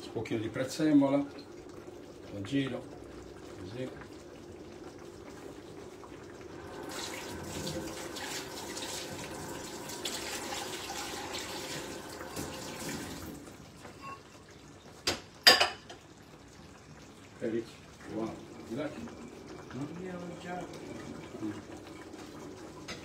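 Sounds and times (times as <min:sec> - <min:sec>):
tap running into sink: 0:06.9 - 0:13.3.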